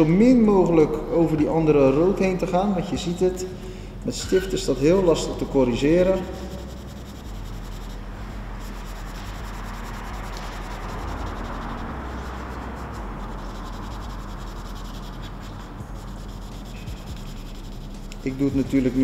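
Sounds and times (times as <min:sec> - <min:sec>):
marker rubbing on paper: 0:04.2 - 0:19.0.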